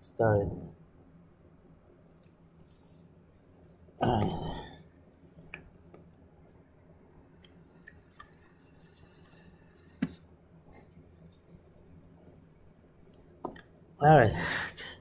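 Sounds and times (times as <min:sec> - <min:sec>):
low steady hum: 0:00.0 - 0:15.0
small clicks and scrapes: 0:07.4 - 0:11.5.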